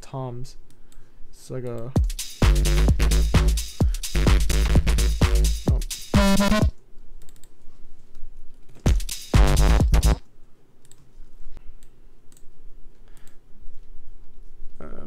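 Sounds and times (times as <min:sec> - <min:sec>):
pitched electronic drum sound: 0:02.0 - 0:06.8, 0:08.9 - 0:10.2
electronic tom drum hits: 0:08.9 - 0:10.2.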